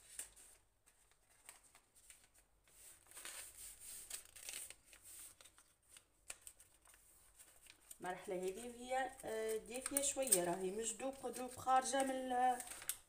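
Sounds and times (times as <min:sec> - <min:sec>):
baking paper crinkling: 0:00.0 - 0:13.0.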